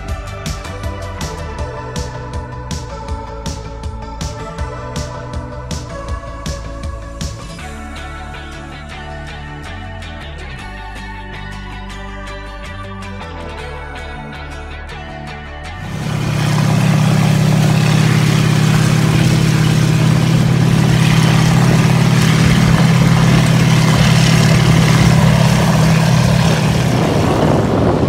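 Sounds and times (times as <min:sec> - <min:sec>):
background music: 0:00.0 - 0:28.0
vehicle engine drone: 0:15.8 - 0:28.0.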